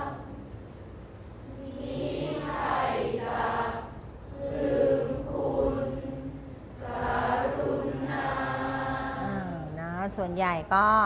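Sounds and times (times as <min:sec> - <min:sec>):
students chanting a poem together: 0:00.0 - 0:00.4, 0:01.5 - 0:09.5.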